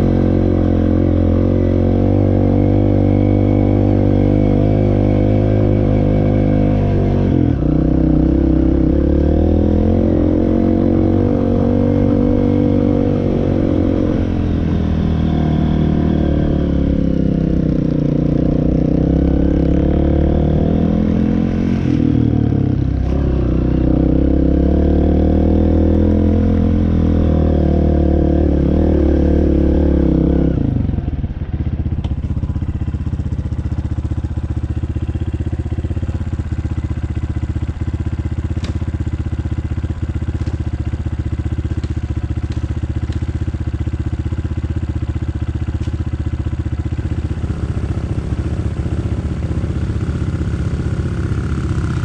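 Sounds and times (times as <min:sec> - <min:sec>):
off-road engine revving: 0:00.0 - 0:31.3, 0:46.6 - 0:52.0.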